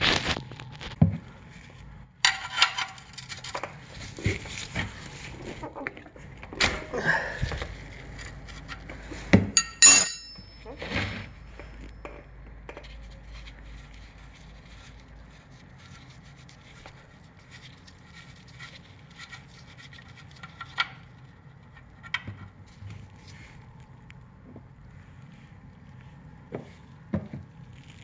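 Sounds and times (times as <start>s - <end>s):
hand rubbing and scraping metal: 1.5s - 6.0s, 7.1s - 24.1s.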